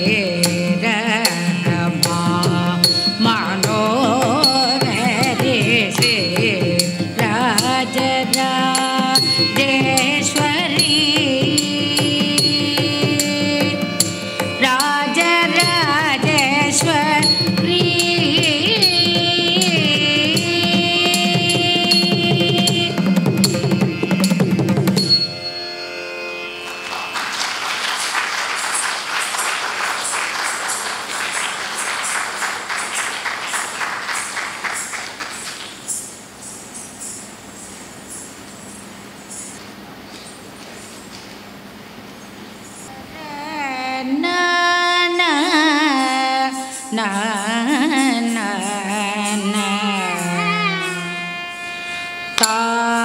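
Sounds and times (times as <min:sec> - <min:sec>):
drum strokes: 0:15.5 - 0:25.4.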